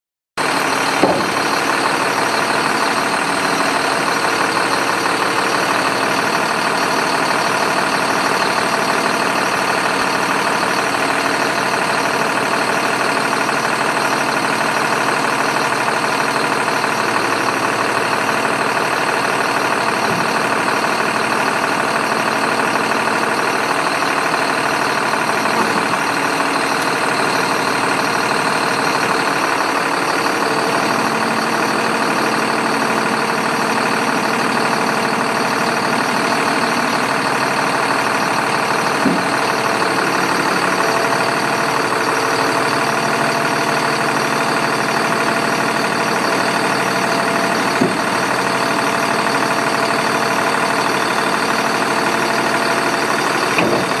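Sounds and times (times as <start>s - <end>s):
hydraulic hoist lowering: 0.4s - 12.6s, 13.8s - 54.0s
diesel engine idling: 0.4s - 54.0s
short knocks: 53.6s - 54.0s.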